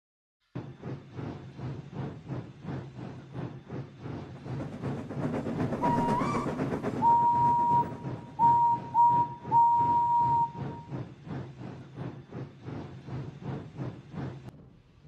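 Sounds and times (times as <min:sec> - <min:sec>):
steam locomotive chuffing: 0:00.5 - 0:15.0
steam whistle blasts: 0:05.8 - 0:10.9.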